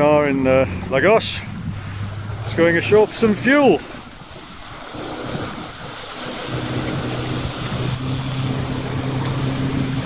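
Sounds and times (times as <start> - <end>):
wind noise on microphone: 1.2 - 10.0.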